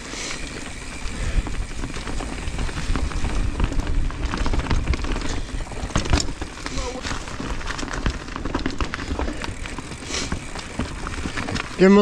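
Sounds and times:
bike clicks and knocks: 0.0s - 12.0s
tyres crackling through leaves: 0.0s - 12.0s
wind rumble on microphone: 0.7s - 8.4s.

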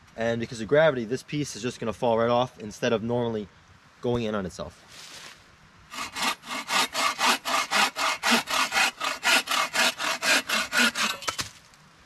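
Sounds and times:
saw rasping through log: 5.9s - 11.4s.

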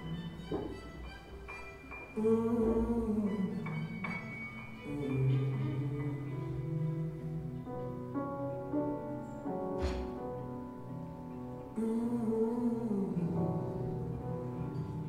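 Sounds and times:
sharp knock: 9.8s - 10.2s.

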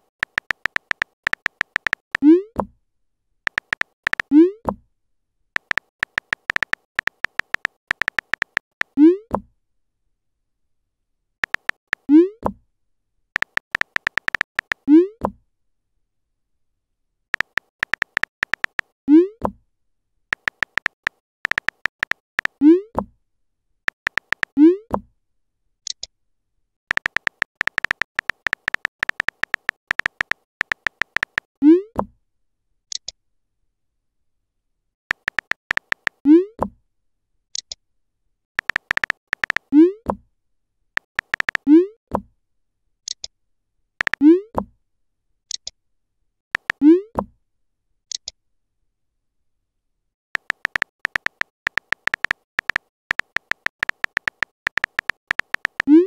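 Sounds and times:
phone keyboard typing clicks: 0.0s - 2.3s, 3.5s - 4.3s, 5.6s - 8.9s, 11.4s - 12.0s, 13.4s - 14.9s, 17.4s - 18.9s, 20.3s - 22.6s, 23.9s - 24.6s, 26.9s - 31.5s, 35.1s - 36.2s, 38.6s - 39.7s, 41.0s - 41.7s, 44.0s - 44.2s, 46.6s - 46.8s, 50.4s - 56.0s.

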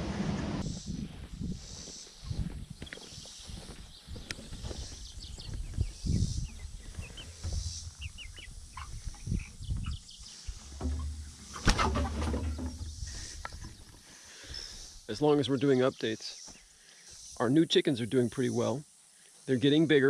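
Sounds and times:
low rumble: 0.0s - 1.2s
chicks peeping: 3.4s - 14.0s.

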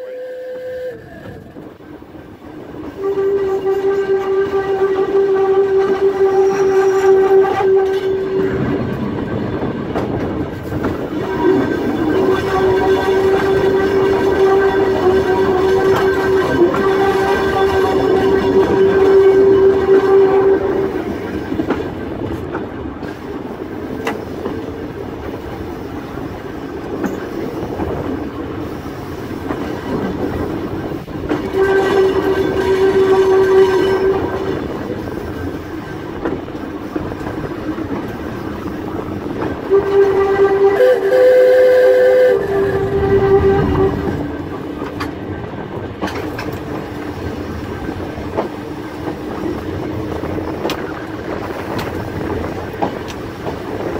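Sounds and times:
electric railway car rumbling: 0.0s - 53.9s
wheels clicking on rails: 42.3s - 53.9s.

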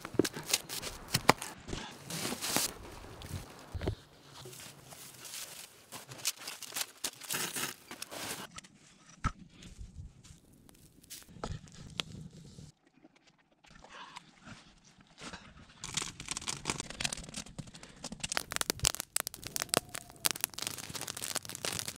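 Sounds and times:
campfire crackling and popping: 15.9s - 22.0s.

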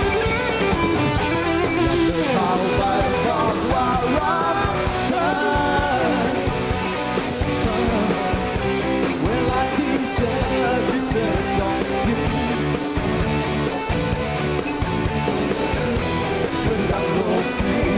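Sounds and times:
live rock band playing: 0.0s - 17.9s
man singing: 2.0s - 13.2s, 15.5s - 17.9s.

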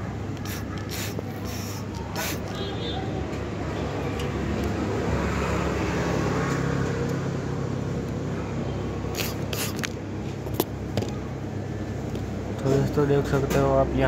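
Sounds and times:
short sharp hisses: 0.4s - 2.6s, 9.1s - 9.8s.

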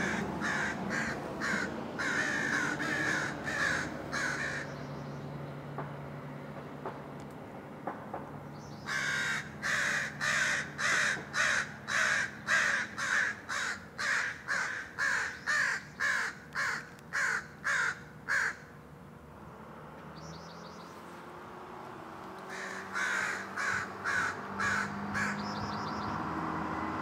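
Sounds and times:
crow cawing: 0.0s - 4.7s, 8.9s - 18.7s, 22.5s - 25.6s.

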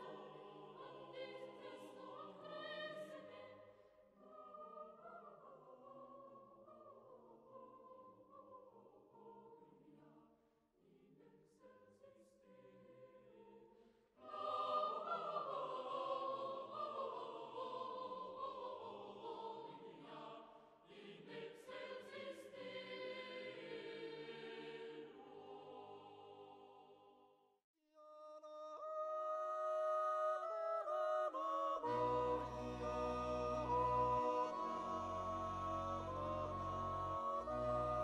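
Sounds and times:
choir singing held chords: 0.0s - 5.6s, 14.2s - 27.2s, 29.8s - 38.0s.

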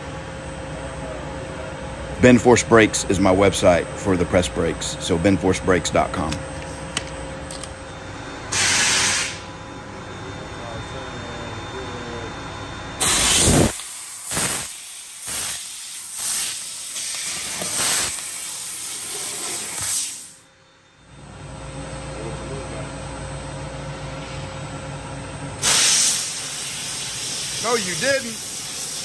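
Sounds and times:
low machine hum: 0.0s - 18.6s, 20.4s - 29.0s
laser cutter gas hissing bursts: 8.5s - 9.5s, 13.0s - 20.4s, 25.6s - 29.0s.

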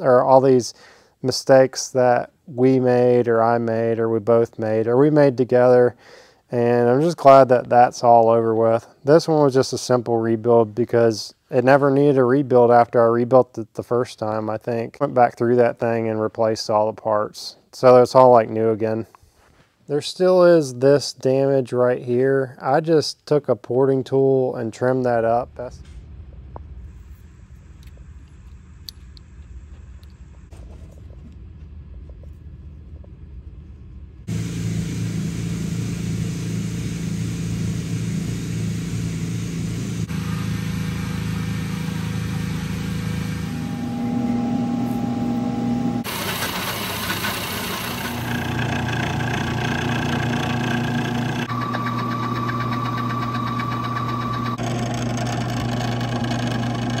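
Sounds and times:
milling machine cutting metal: 34.3s - 57.0s.

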